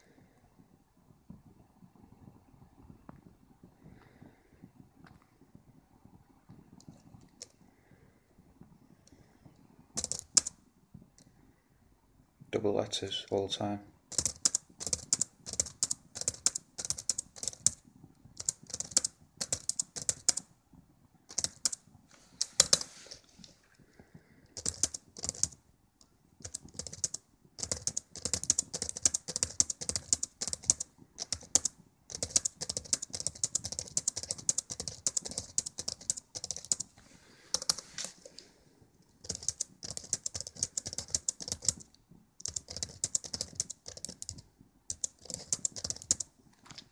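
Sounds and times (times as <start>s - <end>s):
laptop keyboard typing: 6.8s - 8.0s, 9.9s - 10.6s, 14.1s - 20.6s, 21.2s - 23.2s, 23.9s - 46.9s.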